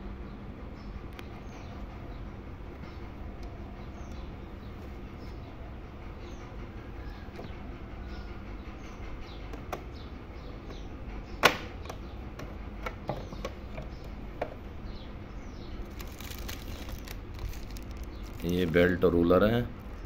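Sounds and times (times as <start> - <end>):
plastic bag crinkling: 15.8 - 19.2.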